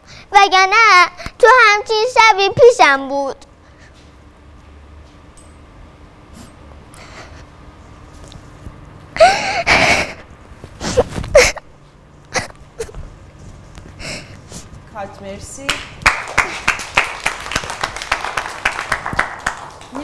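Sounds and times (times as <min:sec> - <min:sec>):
boy sobbing: 0:09.2 - 0:11.7.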